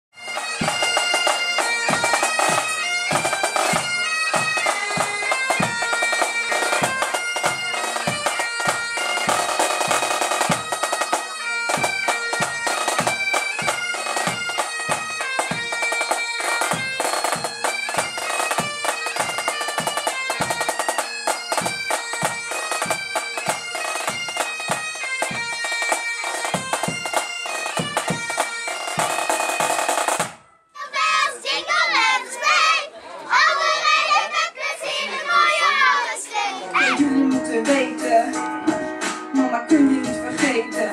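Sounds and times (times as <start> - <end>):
bagpipes playing melody: 0.2 - 30.4
drums beating: 0.2 - 30.4.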